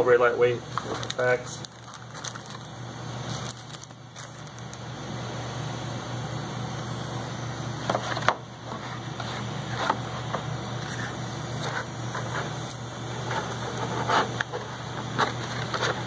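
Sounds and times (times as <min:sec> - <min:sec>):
paper and packaging rustling: 0:00.8 - 0:04.8.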